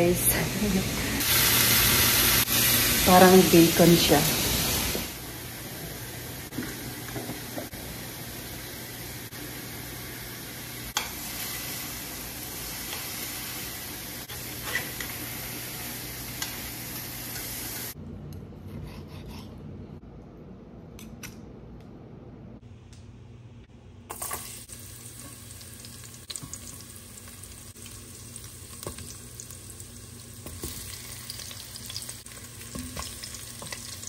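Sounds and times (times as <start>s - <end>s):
meat sizzling in a skillet: 1.2s - 5.5s, 7.8s - 18.0s, 24.1s - 34.0s.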